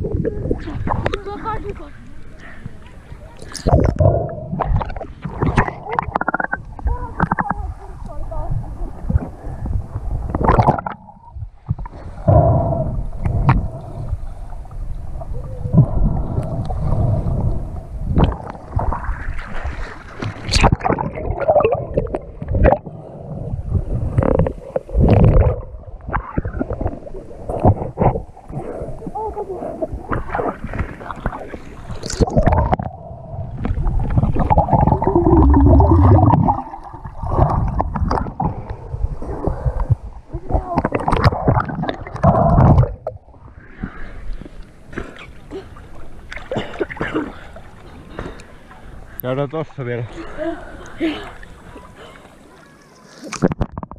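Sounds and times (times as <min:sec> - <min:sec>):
muffled underwater gurgling: 0:00.0 - 0:19.5, 0:20.4 - 0:44.0
water rushing over camera: 0:00.0 - 0:53.9
water splashing: 0:00.0 - 0:53.9.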